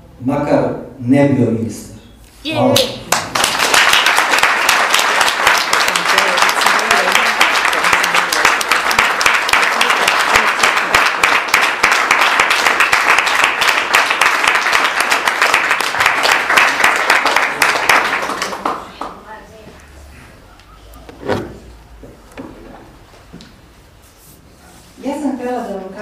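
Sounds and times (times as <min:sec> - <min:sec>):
audience applauding: 0:03.1 - 0:19.2.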